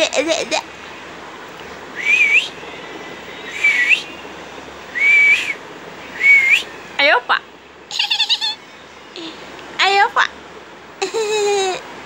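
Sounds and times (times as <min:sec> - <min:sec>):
person whistling short notes: 0:02.0 - 0:02.5, 0:03.5 - 0:04.1, 0:05.0 - 0:05.6, 0:06.2 - 0:06.6.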